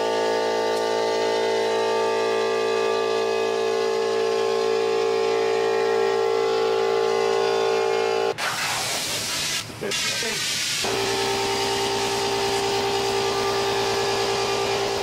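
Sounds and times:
compressed air hissing: 8.4s - 13.2s.

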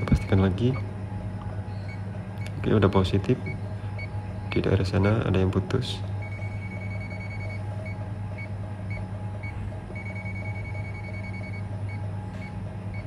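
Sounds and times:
steady low hum: 0.0s - 13.0s
voltage detector beeping: 6.2s - 13.0s.

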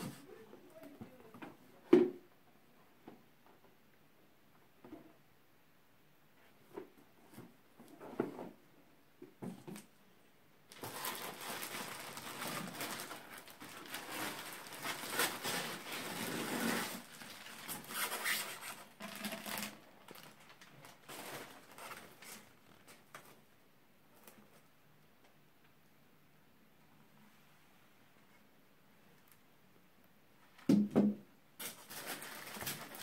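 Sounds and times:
plastic wrapping crinkling: 10.7s - 23.4s, 31.6s - 33.0s.

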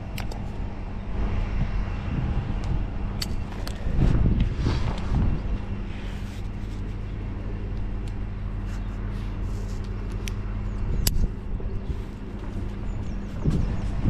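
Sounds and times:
rope hardware clicks: 0.0s - 0.6s
low engine hum: 0.0s - 14.0s.

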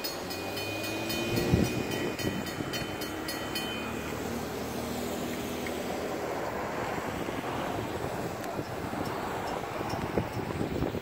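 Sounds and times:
train wheel clicks: 0.0s - 4.2s, 8.4s - 10.8s
freight train rolling rumble: 0.0s - 11.0s.

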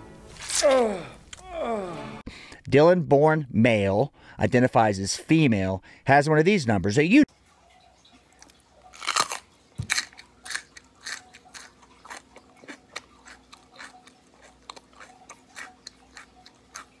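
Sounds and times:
person chewing crisp cucumber: 8.3s - 17.0s.

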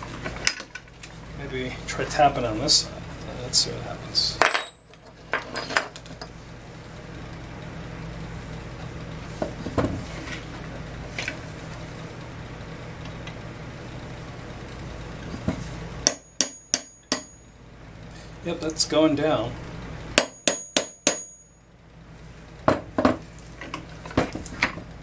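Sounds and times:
steady low hum: 0.0s - 25.0s
hammer tapping steel punch: 16.0s - 17.4s, 20.2s - 21.4s.

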